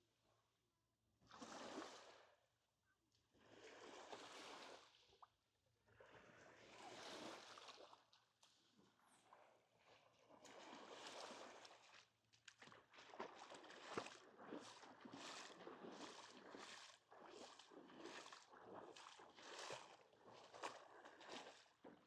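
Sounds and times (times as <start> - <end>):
small waves on a sandy beach: 1.3 - 2.4, 3.3 - 5.2, 5.9 - 22.0.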